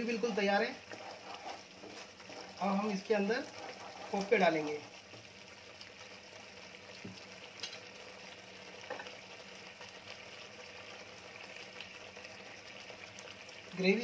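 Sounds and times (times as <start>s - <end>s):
gravy simmering in a wok: 0.0s - 14.0s.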